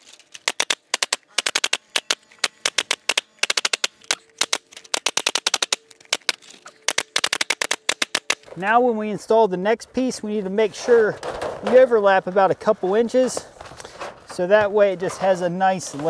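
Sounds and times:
pneumatic nail gun firing: 0.0 - 8.5.

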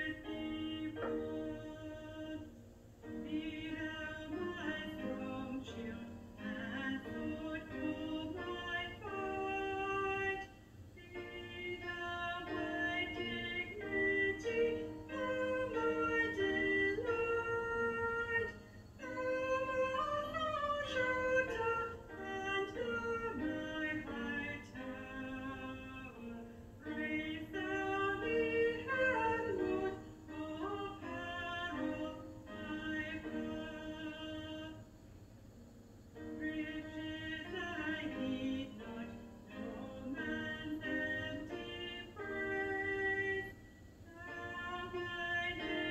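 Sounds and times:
choir singing a hymn in harmony: 0.0 - 2.5, 3.1 - 34.9, 36.2 - 45.9.

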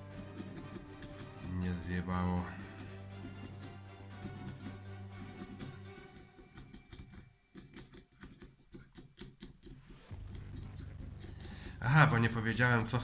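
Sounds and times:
screwdriver scraping metal grooves: 0.1 - 2.0, 2.6 - 8.4.

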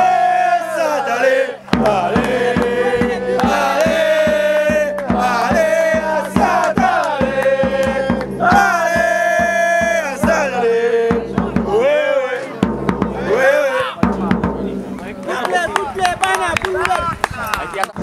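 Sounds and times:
chant-like singing: 0.0 - 14.2
steady drum beat: 1.6 - 17.1.

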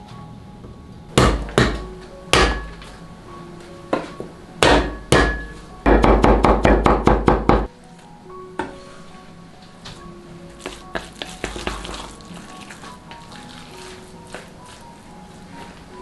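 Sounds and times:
cleaver chopping on wooden block: 1.2 - 1.8, 2.4 - 2.7, 4.6 - 7.7.

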